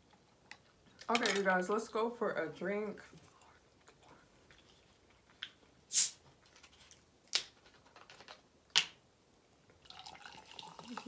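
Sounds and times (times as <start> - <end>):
carbonation hissing: 5.9 - 6.2.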